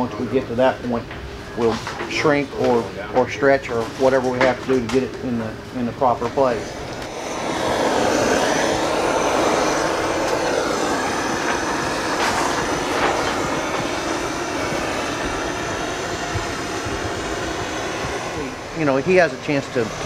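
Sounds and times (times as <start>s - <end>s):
propane torch roaring: 0.0s - 20.0s.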